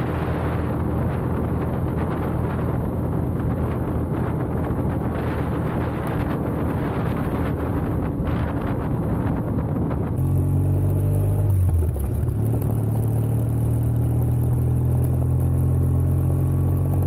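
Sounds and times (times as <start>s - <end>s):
motorcycle engine running: 0.0s - 17.0s
wind rushing over microphone: 0.0s - 17.0s.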